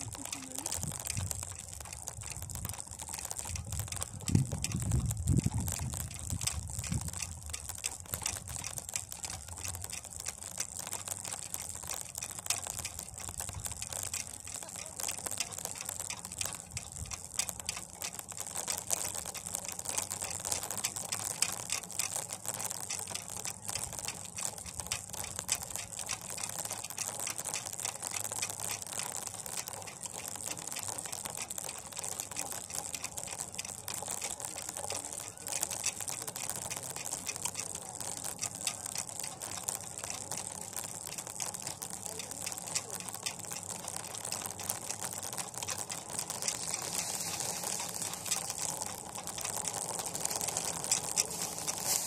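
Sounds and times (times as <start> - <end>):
pulley rattling on wire cable: 0.0 - 52.0.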